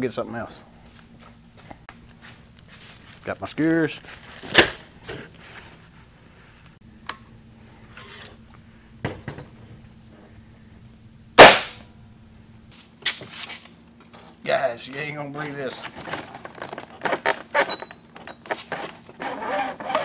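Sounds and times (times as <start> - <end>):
air rifle shot: 11.4 - 11.9.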